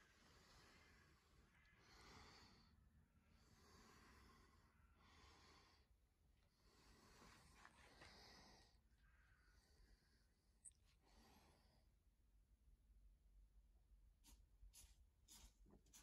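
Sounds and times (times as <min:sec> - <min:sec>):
faint slow breathing: 0:00.0 - 0:12.0.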